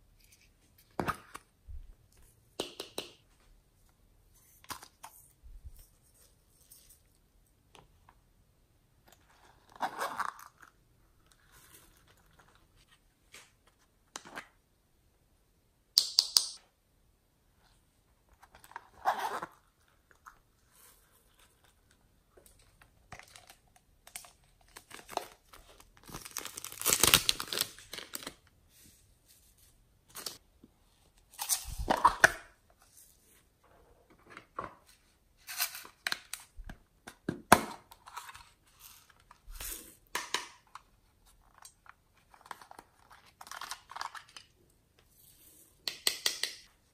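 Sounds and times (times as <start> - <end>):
foam toys tearing and crinkling: 24.8 - 28.4.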